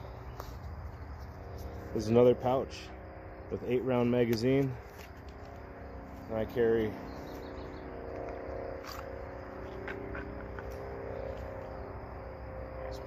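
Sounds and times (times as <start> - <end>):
steady background drone: 0.0 - 13.0.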